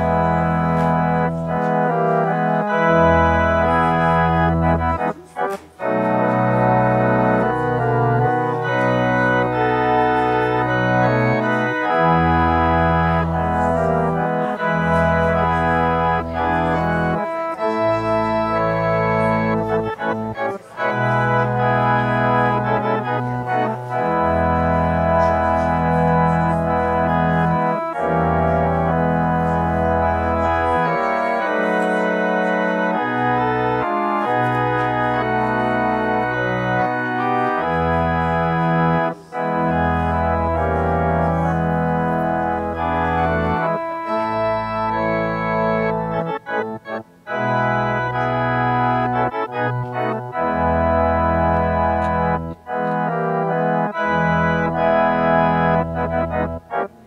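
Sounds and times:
church organ chords: 0:00.0 - 0:57.0.

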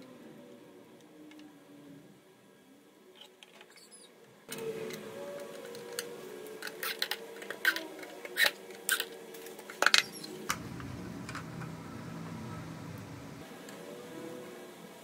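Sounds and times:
low steady hum: 0:10.5 - 0:13.5.

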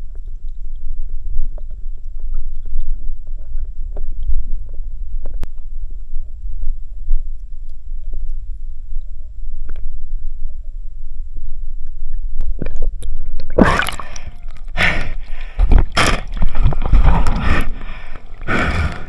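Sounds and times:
muffled underwater rumble: 0:00.0 - 0:19.0
water splashing and sloshing: 0:12.4 - 0:19.0.

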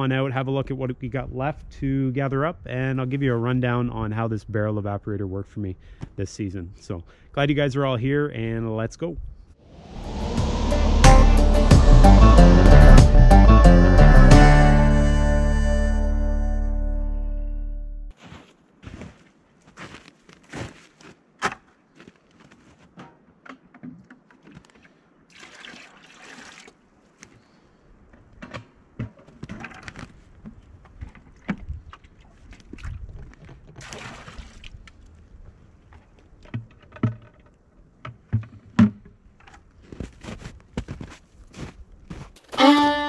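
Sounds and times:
footsteps in snow: 0:18.1 - 0:23.0, 0:39.8 - 0:42.6
sap pouring into a pail: 0:24.7 - 0:26.8
plastic buckets clunking: 0:36.4 - 0:39.6.

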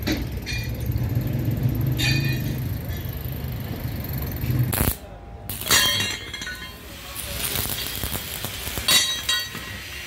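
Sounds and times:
metallic clinks: 0:00.0 - 0:04.5
low mechanical rumble: 0:00.0 - 0:05.7.

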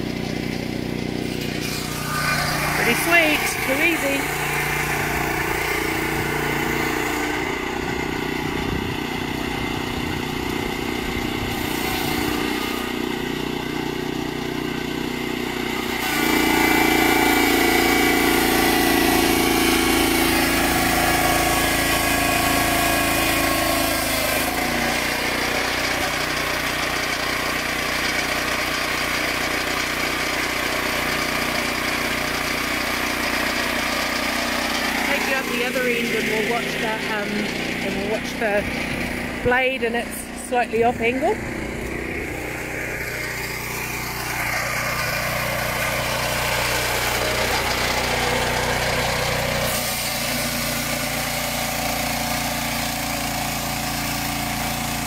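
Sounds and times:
sawmill engine running: 0:00.0 - 0:55.0.

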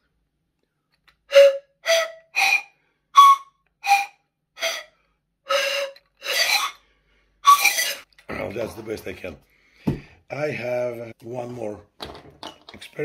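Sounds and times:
toy pan pipes breathy notes: 0:01.2 - 0:08.1.

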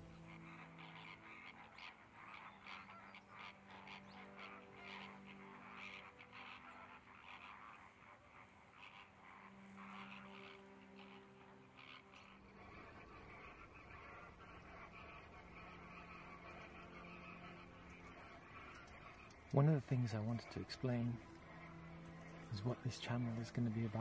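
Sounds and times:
distant flamingos calling: 0:00.0 - 0:24.0.

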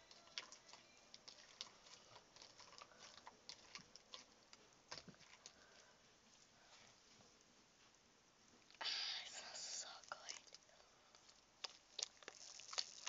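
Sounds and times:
slime clicking and popping: 0:11.6 - 0:13.0.

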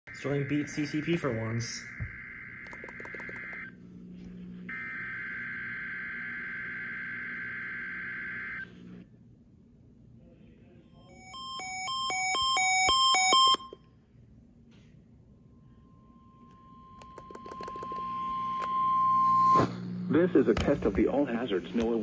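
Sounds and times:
fast electronic alert beeps: 0:00.1 - 0:03.7
harsh data buzzing bursts: 0:00.1 - 0:03.8.

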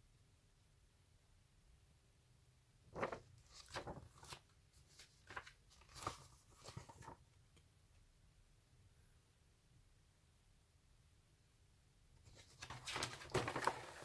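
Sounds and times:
magazine pages turning: 0:03.0 - 0:07.2, 0:12.3 - 0:14.0.

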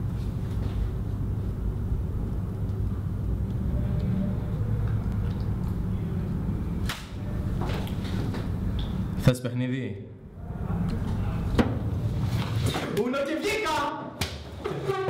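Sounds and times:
steady low rumble: 0:00.0 - 0:09.2.

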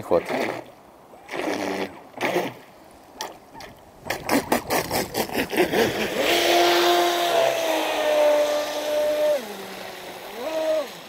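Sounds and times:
rc boat motor bursts churning water: 0:00.0 - 0:00.7, 0:01.3 - 0:02.7, 0:04.0 - 0:11.0.

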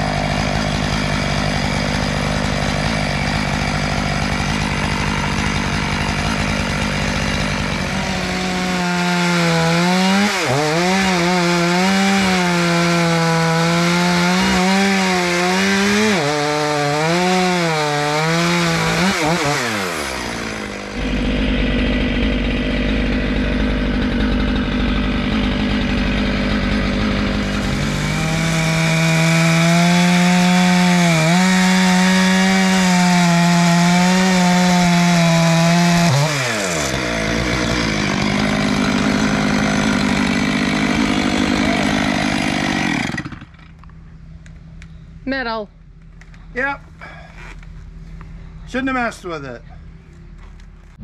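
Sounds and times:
chainsaw cutting wood: 0:00.0 - 0:43.9.

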